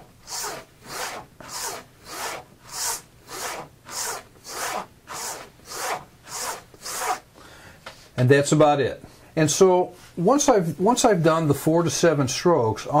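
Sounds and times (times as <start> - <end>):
razor stropping swipes: 0.0 - 7.3.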